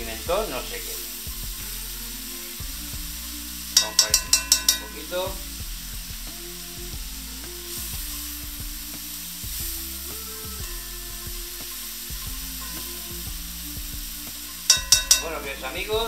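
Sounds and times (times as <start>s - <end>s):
vegetables sizzling in oil: 0.0s - 16.0s
metal utensil scraping a pan: 3.4s - 5.3s, 14.3s - 15.8s.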